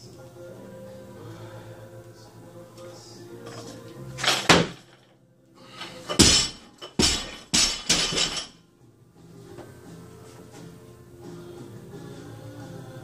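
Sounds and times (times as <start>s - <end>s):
faint music: 0.0s - 13.0s
barbell dropped and bouncing: 4.2s - 5.0s, 6.1s - 8.6s
feet slamming onto platform: 6.2s - 8.4s.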